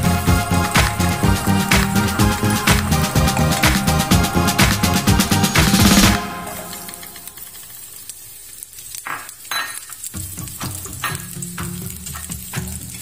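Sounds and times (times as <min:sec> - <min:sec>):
onion and garlic sizzling in oil: 0:06.2 - 0:13.0.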